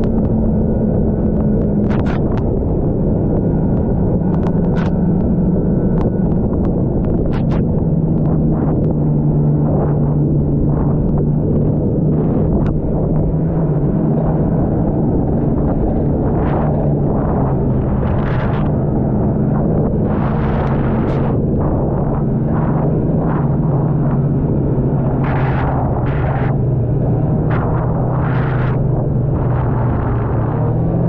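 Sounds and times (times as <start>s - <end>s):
snowmobile engine droning: 0.0s - 31.0s
wind buffeting microphone: 0.0s - 31.0s
sharp clicks: 3.7s - 9.0s.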